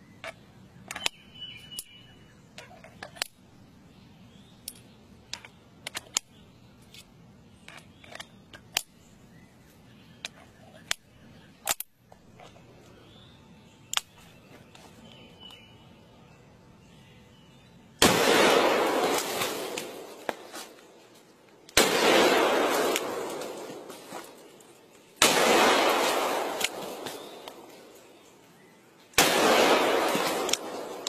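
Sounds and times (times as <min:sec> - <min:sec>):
metallic clicks of cartridges loading: 0:00.2 - 0:03.5, 0:04.6 - 0:09.0.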